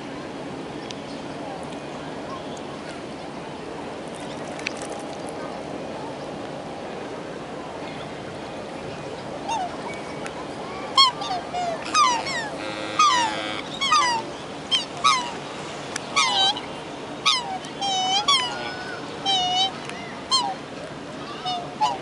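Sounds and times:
swans calling: 10.9s - 20.6s, 21.2s - 22.0s.

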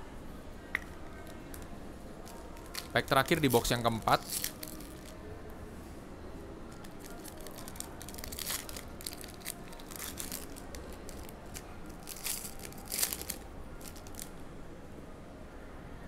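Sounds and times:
wrapper crinkling and tearing: 2.2s - 5.2s, 6.7s - 14.3s.

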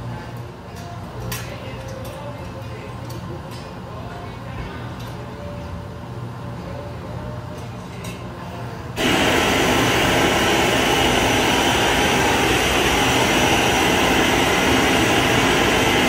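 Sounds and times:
gas torch flame hissing: 9.0s - 16.0s.

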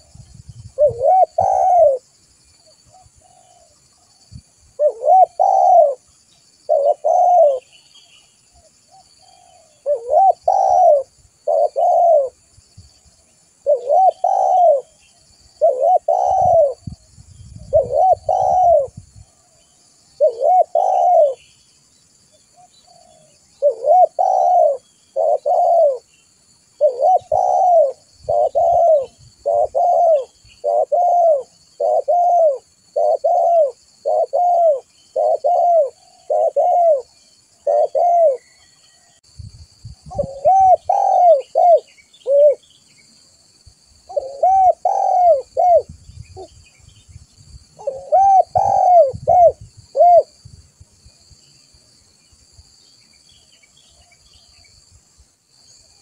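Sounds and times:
small birds chirping: 0.0s - 39.2s, 39.8s - 50.5s
dove cooing: 0.7s - 2.0s, 2.9s - 3.8s, 4.7s - 6.1s, 6.7s - 7.8s, 8.6s - 12.5s, 13.6s - 19.5s, 20.1s - 21.4s, 22.6s - 26.1s, 26.8s - 39.2s, 40.0s - 42.7s, 44.1s - 46.5s, 47.8s - 50.4s.

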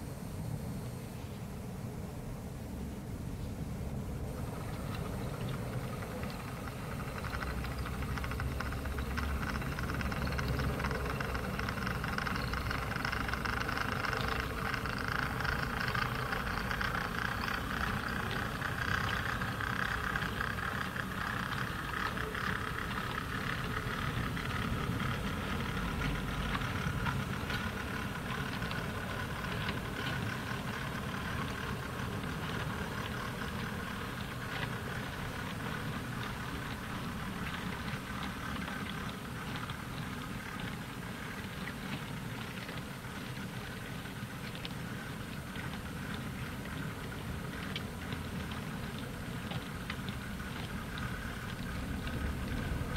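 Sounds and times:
train wheels rattling on track: 4.2s - 40.8s.

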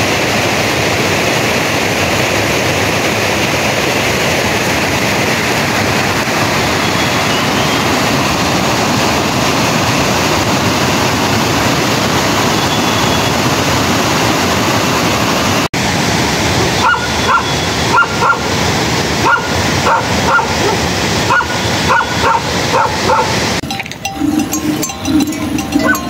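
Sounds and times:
steady rushing noise: 0.0s - 26.0s
dog yipping and whimpering: 16.8s - 18.4s.

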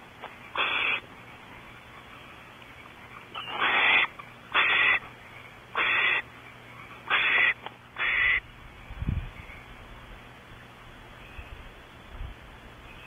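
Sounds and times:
barn owl hissing screeches: 0.5s - 1.0s, 3.4s - 5.0s, 5.7s - 6.2s, 7.1s - 8.4s.

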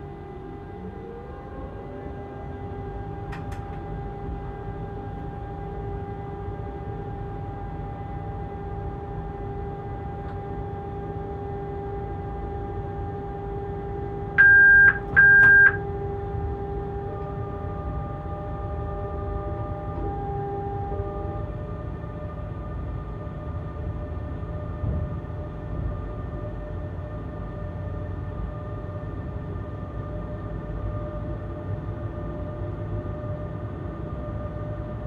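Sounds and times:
locomotive cab hum and rumble: 0.0s - 35.0s
electronic warning beeps: 14.4s - 15.8s.

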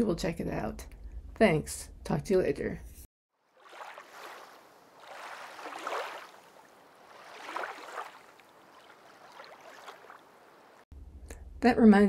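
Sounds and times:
gentle water waves washing: 3.4s - 10.8s.

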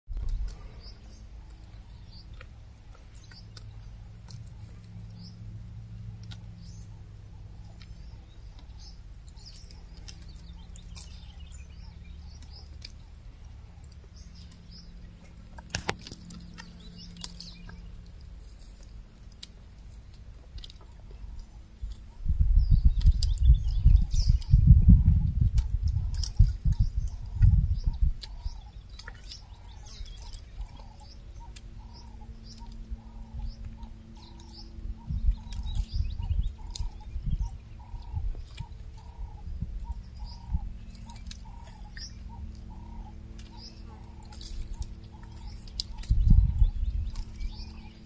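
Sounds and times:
giraffe chewing twigs: 0.1s - 48.0s
low steady hum: 0.1s - 48.0s
small birds chirping: 0.1s - 48.0s
loud low rumble: 21.0s - 48.0s.

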